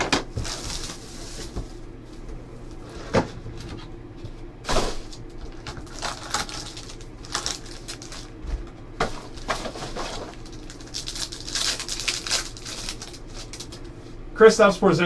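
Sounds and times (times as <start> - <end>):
foil wrapper crinkling: 0.3 - 1.6, 5.0 - 8.4, 9.2 - 13.9.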